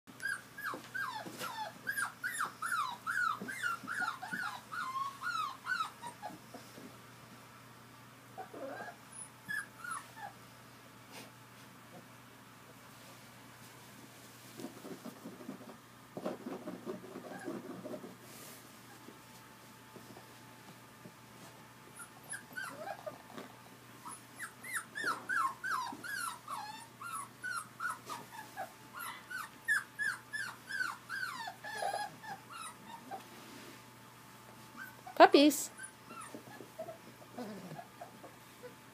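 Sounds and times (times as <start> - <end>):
puppies whimpering and whining: 0.2 - 6.9, 8.4 - 10.4, 17.1 - 17.9, 21.9 - 33.5, 34.7 - 38.9.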